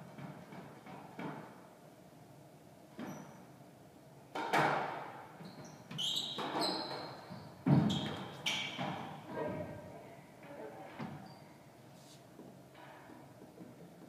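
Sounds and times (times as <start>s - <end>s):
shoes squeaking on wooden floor: 5.4s - 9.8s.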